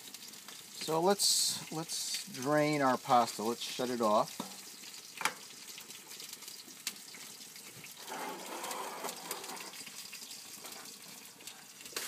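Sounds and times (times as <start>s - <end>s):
water gushing and splashing: 4.3s - 12.0s.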